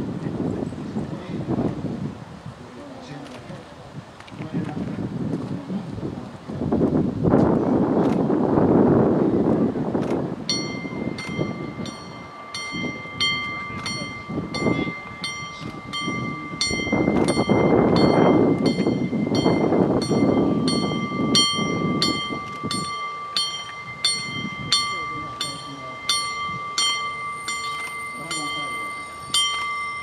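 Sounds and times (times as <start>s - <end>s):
railcar passing on rails: 7.4s - 30.0s
bell ringing: 10.5s - 30.0s
steady high tone: 10.5s - 30.0s.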